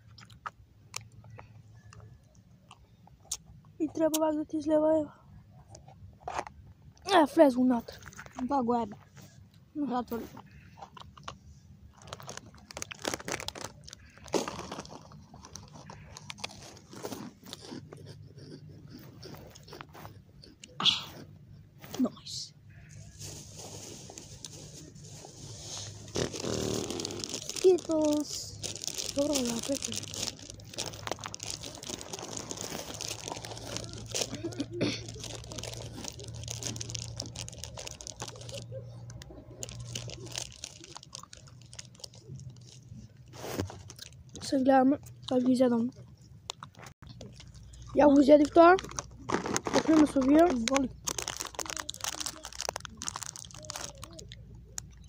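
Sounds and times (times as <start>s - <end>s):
person crunching crisp food: 0.0s - 1.2s, 10.5s - 21.3s, 22.8s - 44.4s, 46.2s - 55.0s
plastic packaging crinkling: 11.9s - 17.9s, 23.0s - 44.5s, 46.5s - 55.0s.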